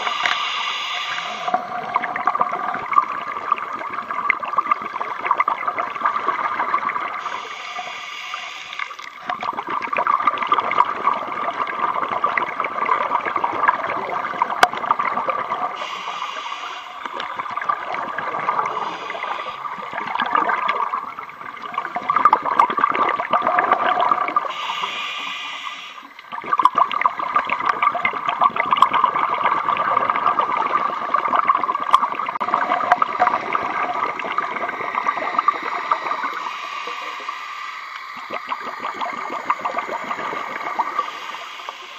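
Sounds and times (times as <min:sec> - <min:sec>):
scuba regulator breath hiss: 0:00.0 - 0:01.9, 0:07.2 - 0:09.1, 0:15.7 - 0:17.3, 0:18.5 - 0:19.8, 0:24.4 - 0:26.2, 0:35.8 - 0:38.4, 0:40.1 - 0:41.9
underwater crackling water noise: 0:00.0 - 0:41.9.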